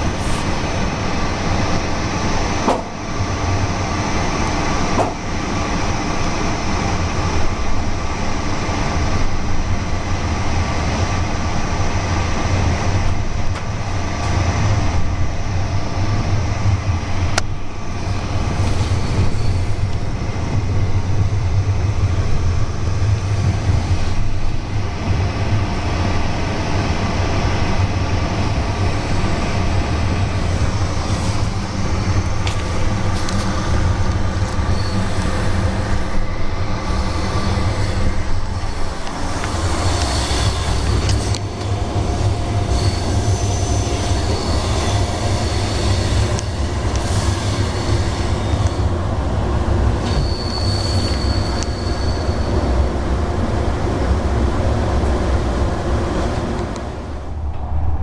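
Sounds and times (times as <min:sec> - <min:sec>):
train wheels rumbling on rails: 0:00.0 - 0:58.0
low hum: 0:52.8 - 0:58.0.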